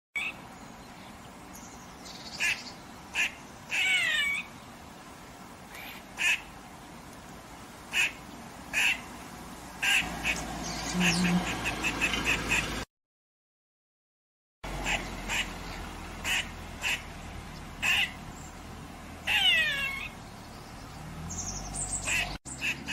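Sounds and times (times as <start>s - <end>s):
squirrel barking alarm call: 0.2s - 0.4s, 2.1s - 4.6s, 5.7s - 6.5s, 7.9s - 9.1s, 9.8s - 12.8s, 14.7s - 17.2s, 17.8s - 18.5s, 19.2s - 20.2s, 21.3s - 22.9s.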